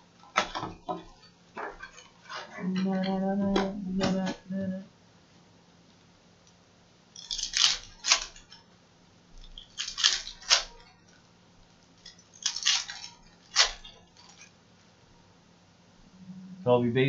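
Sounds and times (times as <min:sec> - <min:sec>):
foil wrappers ripping open: 0:07.2 - 0:08.6, 0:09.4 - 0:11.0, 0:12.0 - 0:14.5.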